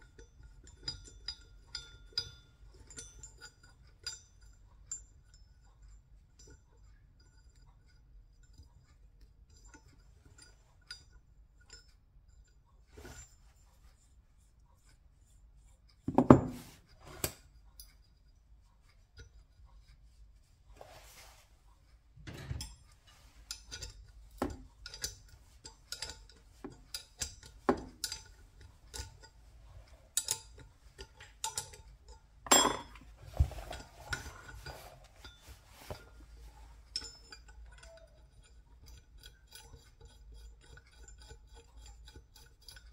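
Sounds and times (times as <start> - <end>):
metal bolts clinking: 22.2 - 29.4, 30.2 - 39.9
metal clanks: 22.2 - 36.2.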